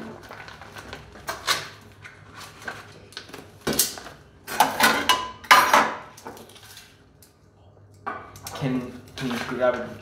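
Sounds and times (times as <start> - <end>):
metal pans and spoons clattering: 4.5 - 6.9.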